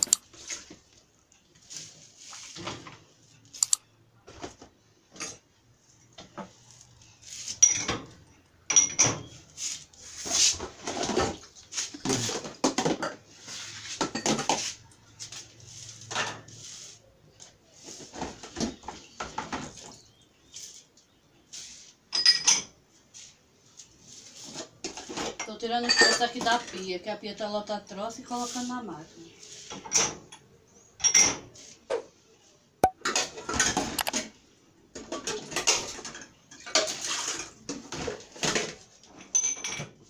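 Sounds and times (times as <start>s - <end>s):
dishes clinking and clattering: 7.6s - 9.4s, 14.0s - 14.6s, 22.1s - 22.8s, 24.8s - 26.8s, 29.7s - 32.1s, 35.0s - 40.0s.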